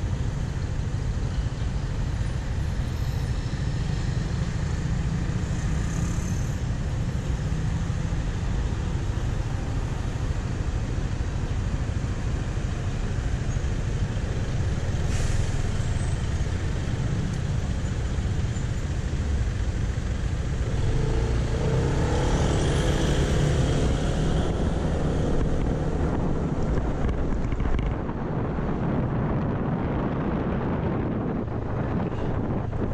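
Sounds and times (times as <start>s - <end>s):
city street traffic: 0.0s - 32.9s
passing vehicle whine: 14.4s - 32.9s.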